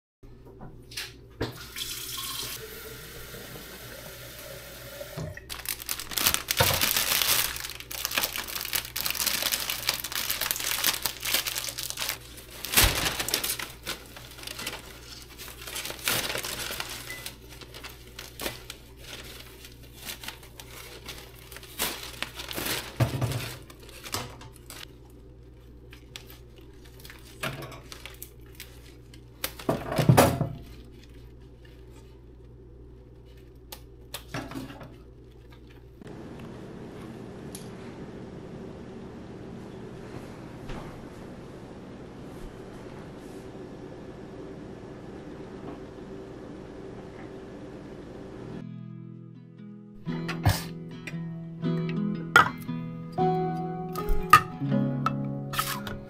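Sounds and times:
plastic wrapping crinkling: 0:05.5 - 0:34.0.

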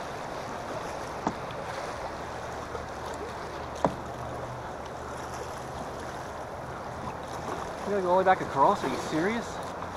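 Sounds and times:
river water slapping hull: 0:00.0 - 0:09.9
knocks against boat: 0:01.1 - 0:01.6, 0:03.7 - 0:04.2.

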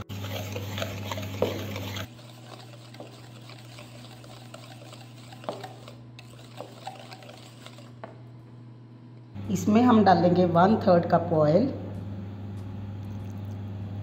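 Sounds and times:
whisk scraping in plastic bowl: 0:00.0 - 0:08.2
steady low hum: 0:00.0 - 0:14.0.

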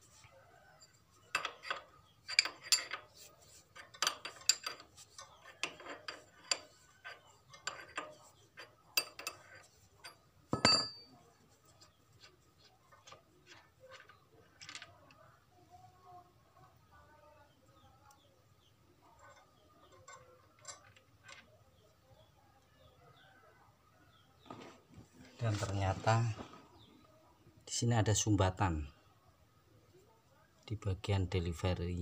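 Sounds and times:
metal tools clinking and tapping: 0:00.8 - 0:15.0, 0:19.1 - 0:21.6.

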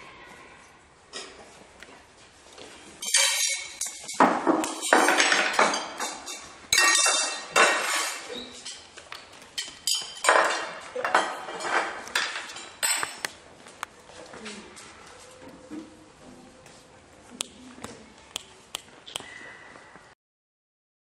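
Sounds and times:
plates and cutlery clattering: 0:03.0 - 0:09.0, 0:09.6 - 0:13.3.

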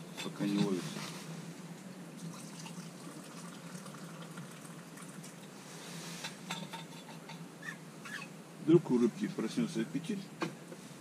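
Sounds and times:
liquid trickling into metal cup: 0:02.2 - 0:05.5.

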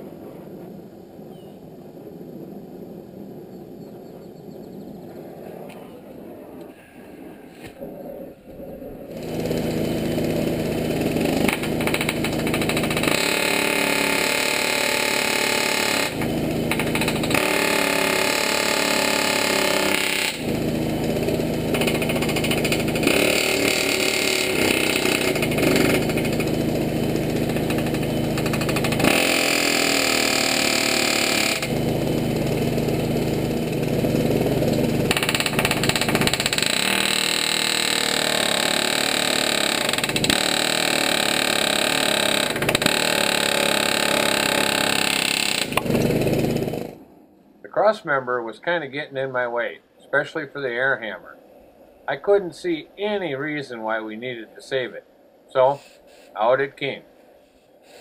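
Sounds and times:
pneumatic air hammer rattling: 0:09.1 - 0:47.0.

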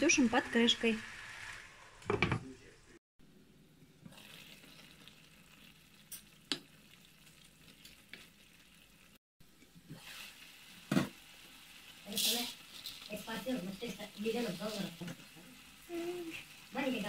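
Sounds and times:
mushrooms sizzling in a frying pan: 0:00.0 - 0:02.2, 0:04.0 - 0:17.0
knocks against the pan: 0:02.1 - 0:02.4.

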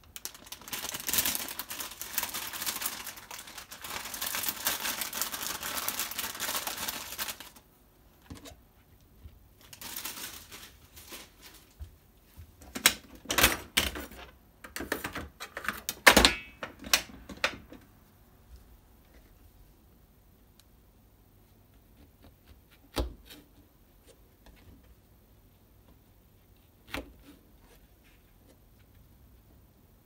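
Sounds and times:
crackling rustle: 0:00.0 - 0:07.6, 0:09.6 - 0:11.9.

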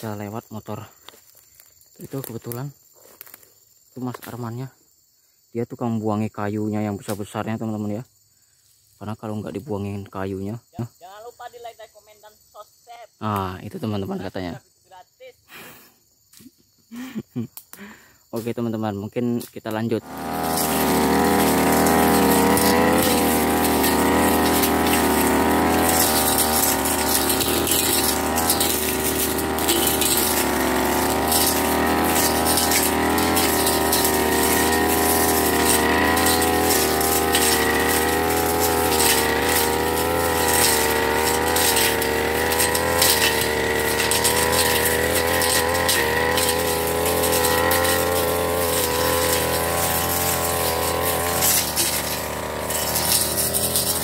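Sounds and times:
blade ticking on stems: 0:20.0 - 0:54.0
brush cutter engine running: 0:20.0 - 0:54.0.

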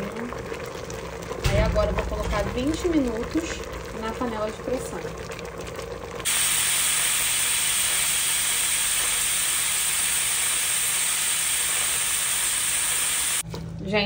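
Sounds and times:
pressure cooker steam hissing: 0:06.3 - 0:13.4.

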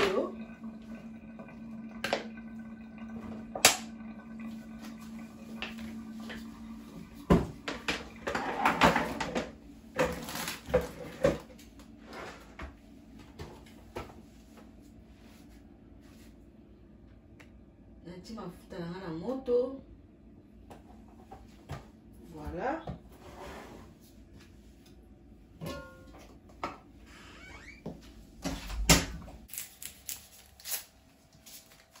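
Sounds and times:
low steady hum: 0:00.0 - 0:32.0
kitchenware clicks and clatters: 0:07.7 - 0:11.6.

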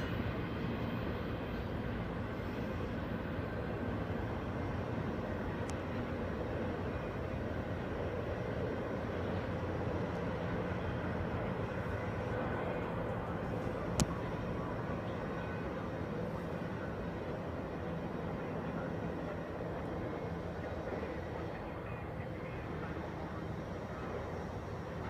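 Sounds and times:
traffic rumble: 0:00.0 - 0:25.0.

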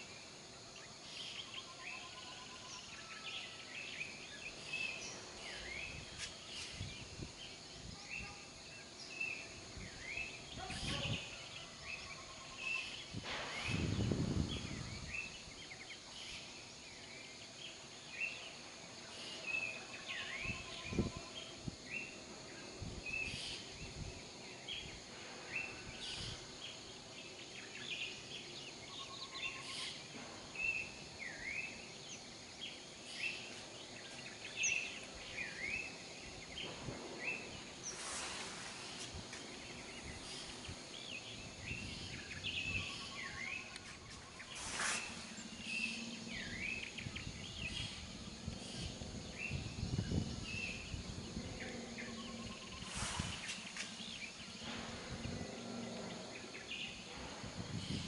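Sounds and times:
birds chirping: 0:00.0 - 0:58.0
outdoor background noise: 0:00.0 - 0:58.0
brief rushes of noise: 0:52.8 - 0:55.0.

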